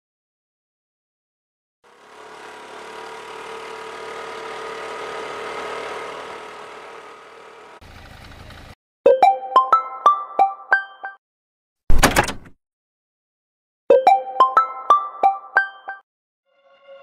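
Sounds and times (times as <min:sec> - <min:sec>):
scooter engine passing: 0:01.9 - 0:08.8
low rumbly engine: 0:06.0 - 0:08.8.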